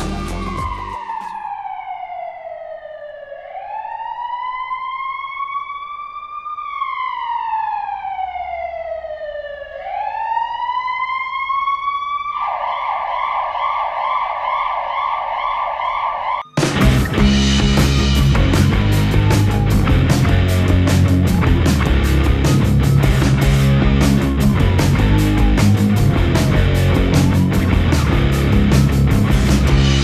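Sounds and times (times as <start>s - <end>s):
toy ambulance siren: 0.1s - 16.8s.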